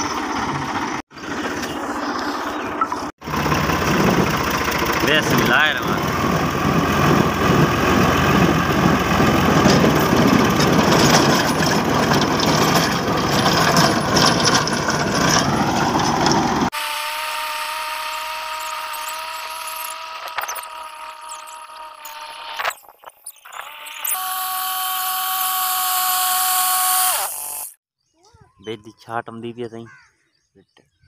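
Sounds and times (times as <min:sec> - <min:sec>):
tractor engine under load: 0:00.0 - 0:16.8
tiller tines churning soil: 0:00.0 - 0:27.8.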